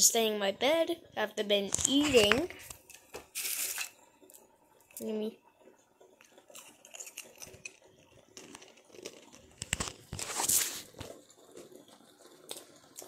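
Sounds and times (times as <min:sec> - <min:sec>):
small clicks and crunches: 0:01.7 - 0:05.1, 0:06.0 - 0:13.0.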